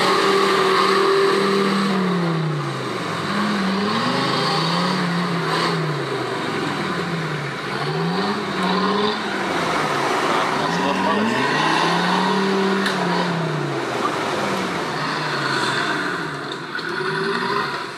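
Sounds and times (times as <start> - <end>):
engine revving: 0.0 - 17.9.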